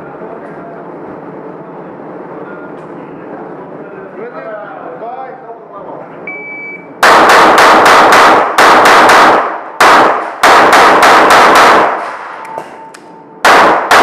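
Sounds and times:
pistol shots echoing indoors: 7.0s - 14.0s.

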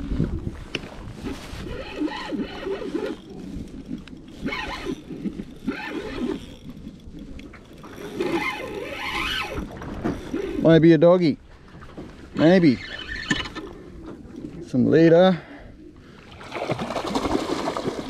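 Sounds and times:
spinning reel being cranked: 1.6s - 10.8s.

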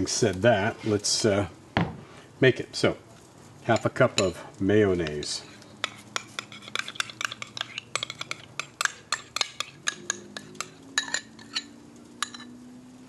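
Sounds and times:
metal spoon scraping a cup: 5.1s - 12.6s.

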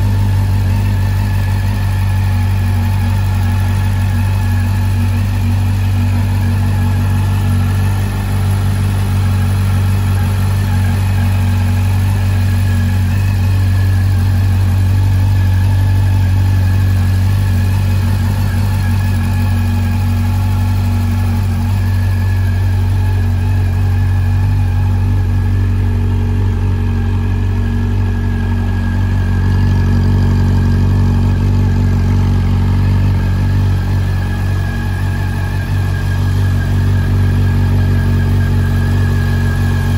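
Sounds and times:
motorcycle engine idling: 0.0s - 39.9s.

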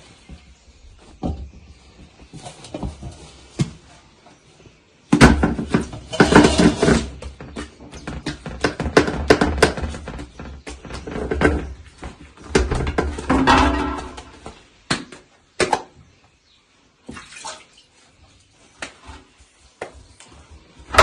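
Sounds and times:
hands slapping dough: 14.9s - 16.0s, 18.8s - 20.3s.

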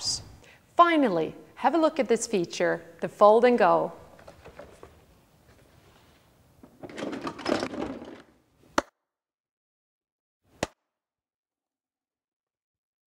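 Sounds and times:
plastic parts clattering: 4.1s - 5.7s, 6.6s - 8.4s.

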